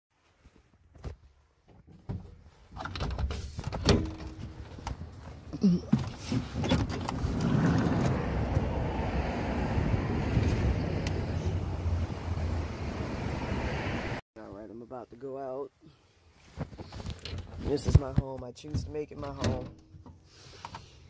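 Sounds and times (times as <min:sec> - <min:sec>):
knocks and clattering handling: 0:01.6 - 0:08.0
wind on microphone: 0:07.2 - 0:14.2
ocean surf rushing: 0:11.2 - 0:14.2.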